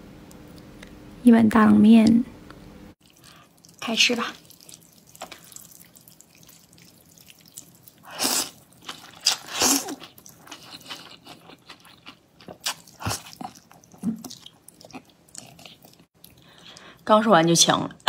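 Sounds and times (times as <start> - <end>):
noodles being slurped: 3.0 - 16.1
woman choking and spluttering: 3.1 - 16.1.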